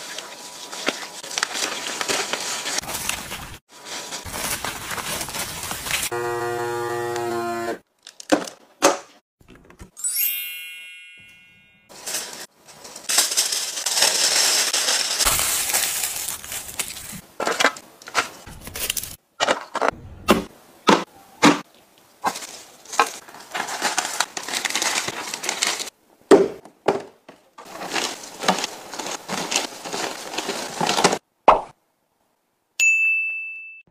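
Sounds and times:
aluminium foil crinkling: 0.0 - 6.1, 11.9 - 19.2, 21.7 - 26.0, 27.6 - 31.2
plastic bags rustling: 0.0 - 6.1, 11.9 - 19.2, 22.2 - 26.0, 27.5 - 31.2
vacuum sealer pump humming: 6.1 - 7.8
chime ringing: 10.0 - 11.9.

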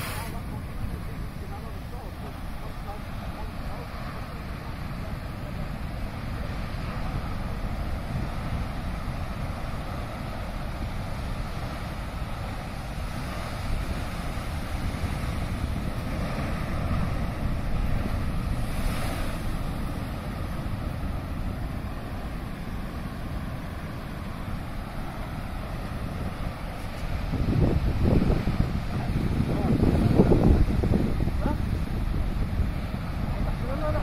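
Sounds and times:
surf breaking on rocks: 0.0 - 34.0
wind rumbling on microphone: 0.0 - 34.0.

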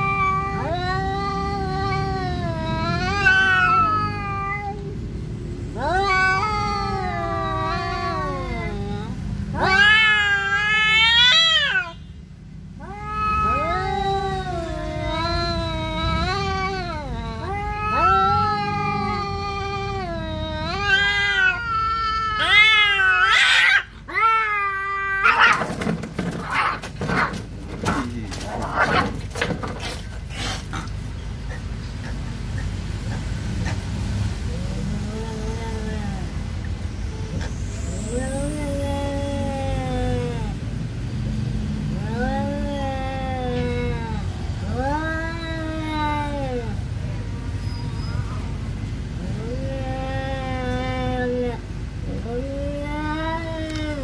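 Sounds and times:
cats yowling: 0.0 - 5.0, 5.7 - 40.8, 41.9 - 54.0
cats hissing and spitting: 12.8 - 40.6.

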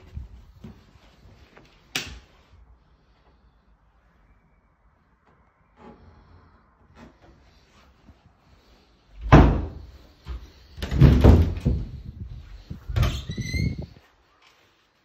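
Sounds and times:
cupboard doors knocking and rattling: 9.3 - 9.8, 10.8 - 12.0.

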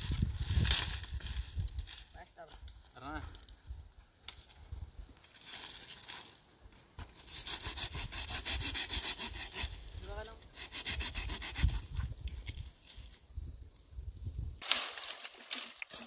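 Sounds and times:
saw cutting firewood: 7.0 - 12.6.

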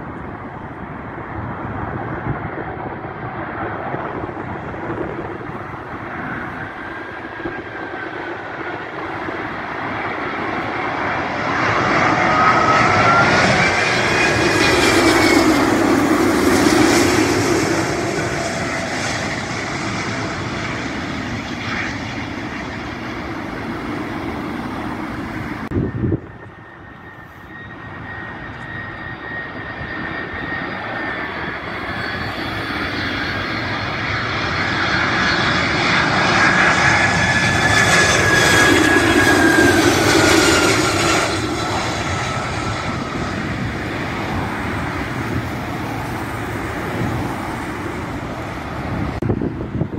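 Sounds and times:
jet engine whine: 0.0 - 49.9
jet engines on landing approach: 0.0 - 49.9.

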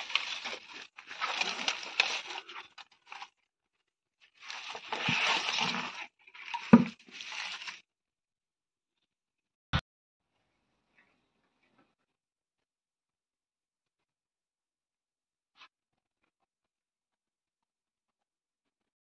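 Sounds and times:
calf crunching fodder in tub: 0.0 - 3.3, 4.3 - 7.8.

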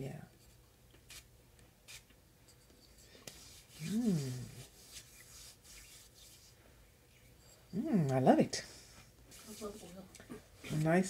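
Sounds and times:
hands rubbing skin: 1.9 - 7.4, 9.0 - 10.0
woman humming mmm: 3.8 - 4.7.

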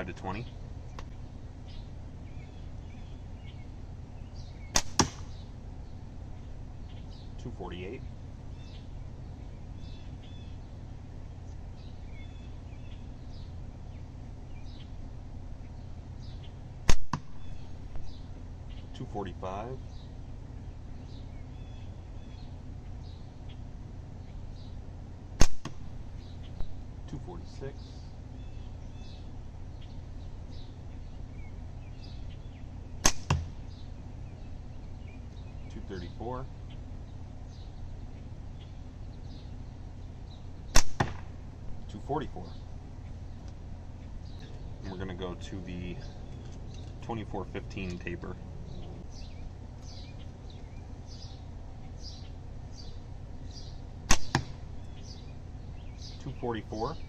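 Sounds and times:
birds chirping faintly: 0.0 - 57.0
low background noise: 0.0 - 57.0
steel ball hitting: 4.7 - 5.3, 33.0 - 33.6, 40.7 - 41.4, 54.1 - 54.6.

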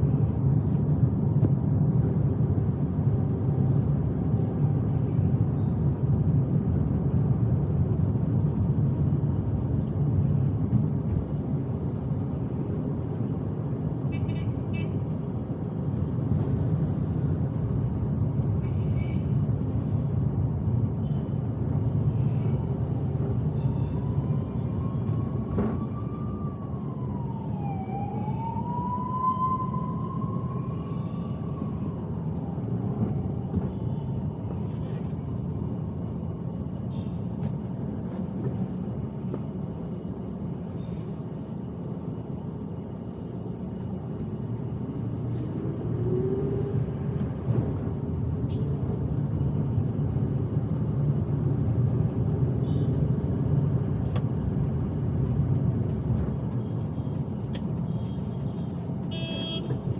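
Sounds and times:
car road and engine noise: 0.0 - 59.9
siren: 22.4 - 34.5, 45.8 - 47.8.

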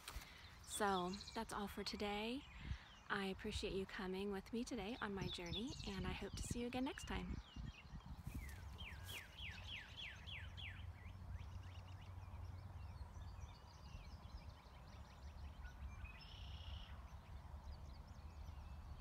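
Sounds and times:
small birds singing: 0.0 - 19.0
faint bird chirps: 5.2 - 19.0.

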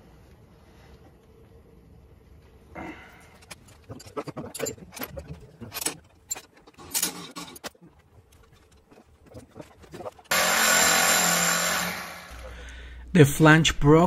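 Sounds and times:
wrenches clicking on metal bolts: 3.5 - 8.8.

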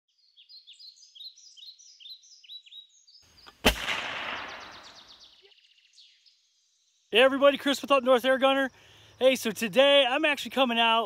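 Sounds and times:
birds chirping: 0.1 - 11.0
gunshot-like bang with echo: 3.6 - 5.1
high rapid bird trill: 4.3 - 5.6.

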